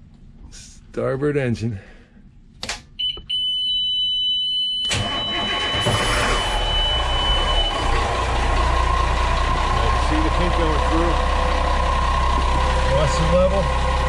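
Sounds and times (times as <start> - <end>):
high electronic warning beep: 3.0 - 8.0
diesel engine starting and idling: 4.8 - 14.0.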